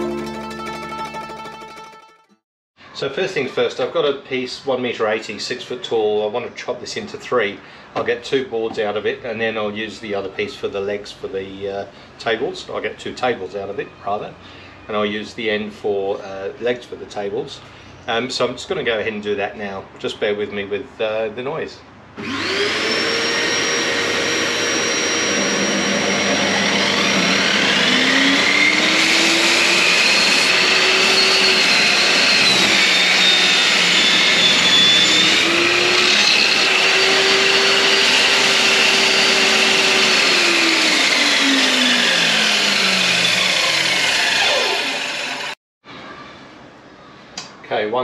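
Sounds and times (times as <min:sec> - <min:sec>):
power saw cutting wood: 0:22.2 - 0:45.6.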